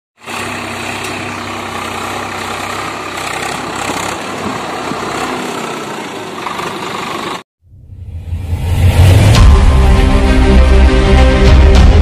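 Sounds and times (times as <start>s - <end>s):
tractor diesel engine running: 0.2s - 7.4s.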